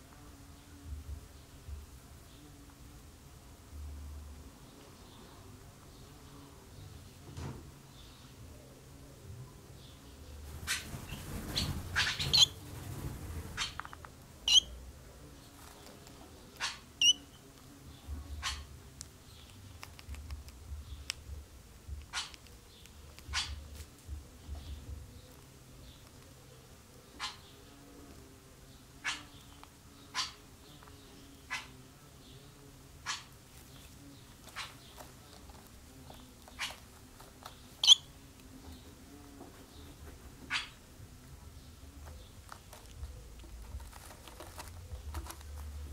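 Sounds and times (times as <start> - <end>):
faint low hum: 0.0 - 45.9
swallows chirping and twittering: 9.8 - 12.8, 13.5 - 14.8, 15.4 - 19.8, 21.9 - 27.8, 28.6 - 40.8
swallows chirping: 10.7 - 12.6, 13.5 - 14.8, 28.8 - 38.9.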